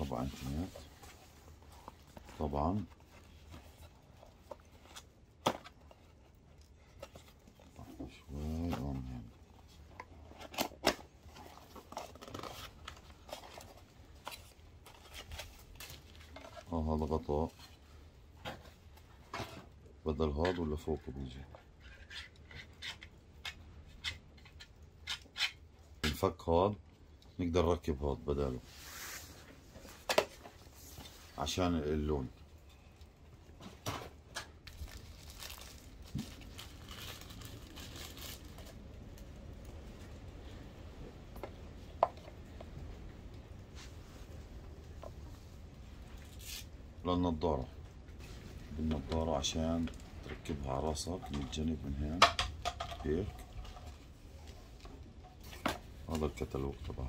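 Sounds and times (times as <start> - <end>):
packaging rustling and crinkling: 0.0 - 23.1, 28.3 - 40.6.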